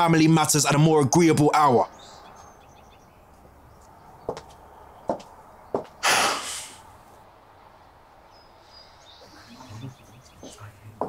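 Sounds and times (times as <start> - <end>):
short loud breathy hiss: 6.0 - 6.9.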